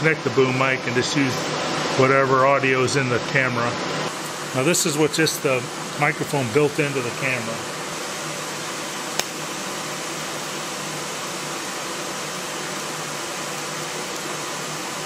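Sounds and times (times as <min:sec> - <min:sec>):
cooling fan: 0:00.0 - 0:15.0
welding arc hiss: 0:04.1 - 0:15.0
welder arc strike click: 0:09.2 - 0:09.4.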